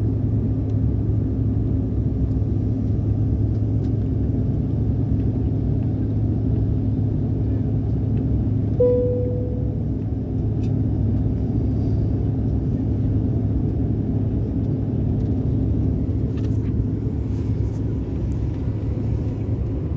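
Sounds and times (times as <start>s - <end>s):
airliner cabin rumble: 0.0s - 19.9s
cabin chime: 8.8s - 9.7s.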